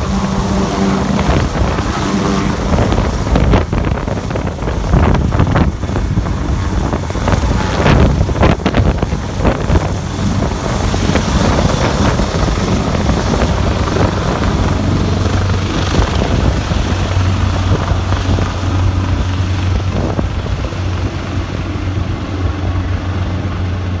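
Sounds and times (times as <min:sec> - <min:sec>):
helicopter rotor drone: 0:00.0 - 0:24.0
rough wind gusts: 0:00.0 - 0:24.0
turbine whine: 0:00.0 - 0:24.0.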